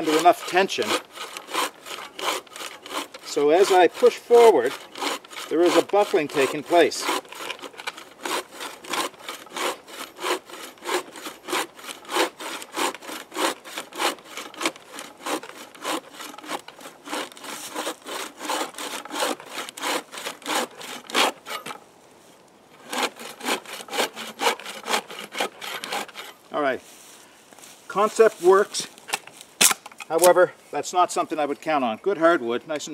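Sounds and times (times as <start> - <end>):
saw cutting wood: 0.0 - 21.8, 22.8 - 26.4.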